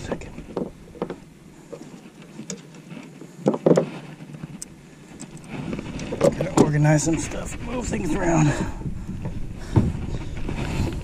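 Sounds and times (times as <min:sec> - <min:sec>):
rustle: 0:00.0 - 0:08.7.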